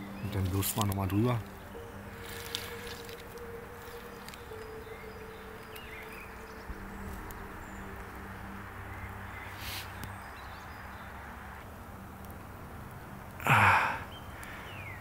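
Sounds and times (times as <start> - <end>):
faint bird chirps: 0.0 - 11.4
low hum: 0.0 - 13.8
short hiss: 9.6 - 9.9.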